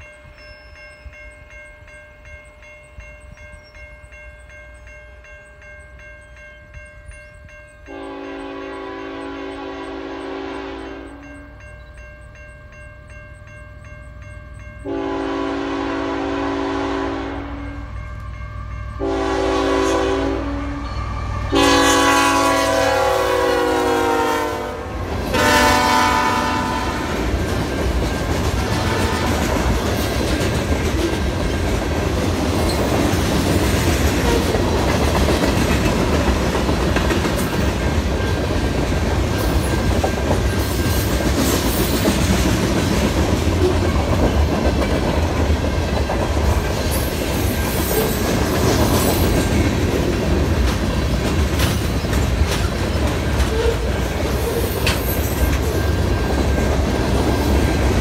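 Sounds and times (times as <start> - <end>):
crossing signal bell ringing: 0.0 - 52.4, 53.0 - 58.0
locomotive air horn blasts: 7.9 - 11.2, 14.8 - 17.8, 19.0 - 20.9, 21.5 - 27.2, 28.7 - 29.4
train wheels clickety-clack: 23.6 - 58.0.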